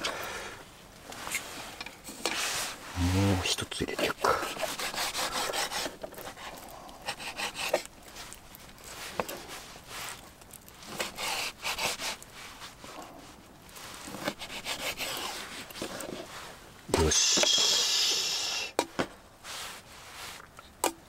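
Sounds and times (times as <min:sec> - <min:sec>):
knife sawing through chicken: 0:04.4 - 0:06.4, 0:07.0 - 0:07.9, 0:11.0 - 0:12.2, 0:14.2 - 0:15.4.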